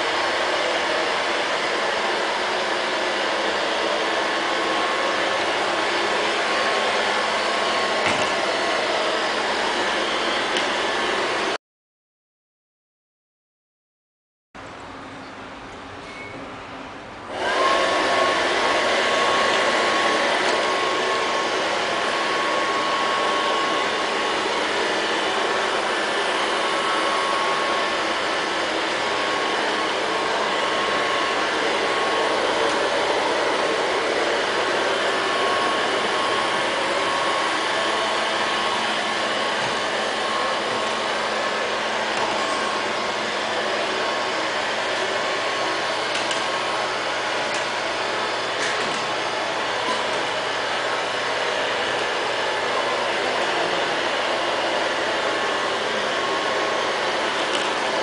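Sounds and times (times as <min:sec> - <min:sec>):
robot vacuum suction motor: 0:17.3 - 0:58.0.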